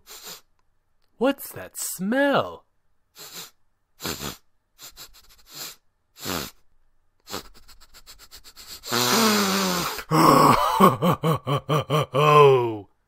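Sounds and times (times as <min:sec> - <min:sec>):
person sniffing: 0:00.0 - 0:00.5, 0:03.1 - 0:06.6, 0:07.2 - 0:10.2.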